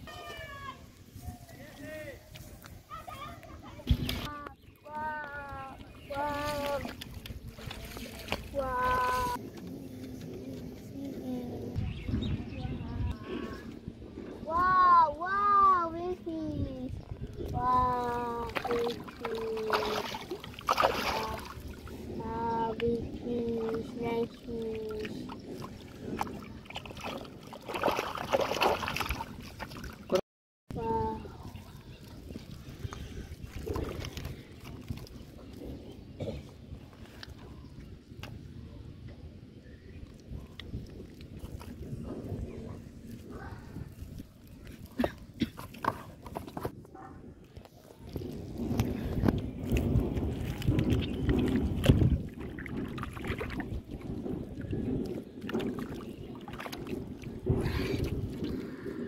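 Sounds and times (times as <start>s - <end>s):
wind noise on microphone: 0.0s - 59.0s
bare feet squelching in mud: 5.2s - 10.8s, 17.5s - 22.4s, 23.5s - 30.2s, 47.8s - 59.0s
fish splashing in water: 18.4s - 21.9s, 25.1s - 30.2s.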